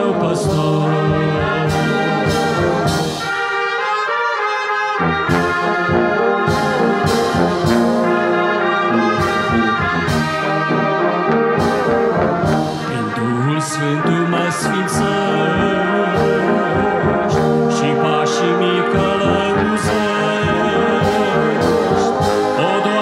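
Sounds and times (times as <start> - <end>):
brass band playing a hymn: 0.0 - 23.0.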